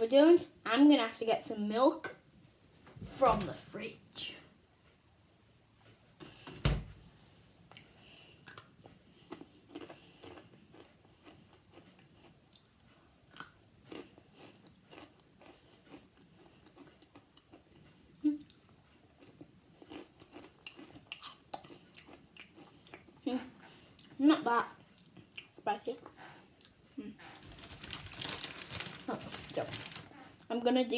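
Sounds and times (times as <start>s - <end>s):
person chewing crunchy chip: 8.4s - 12.7s, 13.3s - 23.2s, 27.3s - 30.1s.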